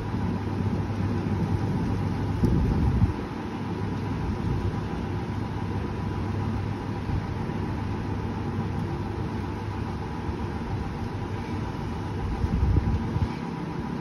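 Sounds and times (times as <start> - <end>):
faint steady hum: 0.0 - 14.0
wind buffeting microphone: 1.4 - 3.2, 12.2 - 13.3.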